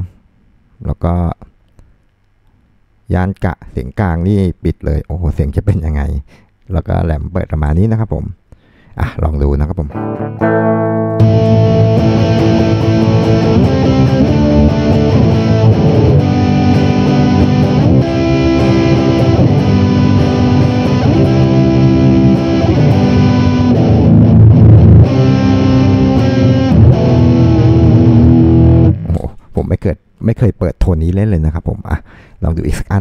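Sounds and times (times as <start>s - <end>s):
distorted electric guitar chords: 9.9s - 29.2s.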